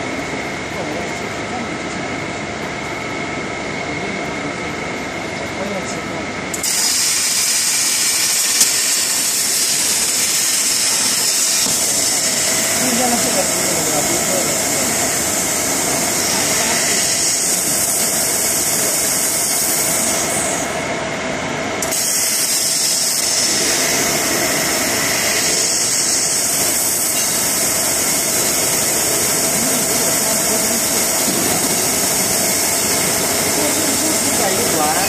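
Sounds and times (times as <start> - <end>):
cutting torch hissing: 6.5 - 20.8, 21.8 - 35.0.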